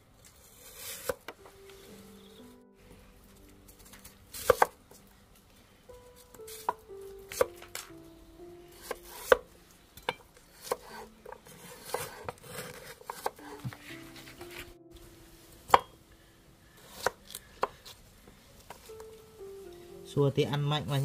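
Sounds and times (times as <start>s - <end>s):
soft background music: 0.0s - 21.0s
knife chopping on wooden board: 10.1s - 13.7s.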